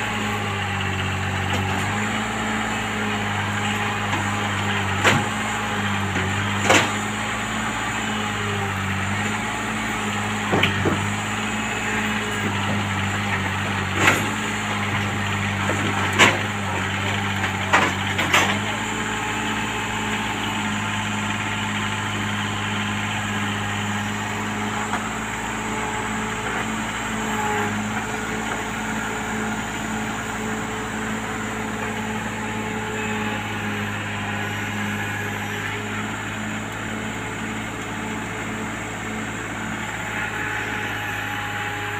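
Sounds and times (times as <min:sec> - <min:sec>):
excavator diesel engine running: 0:00.0 - 0:41.9.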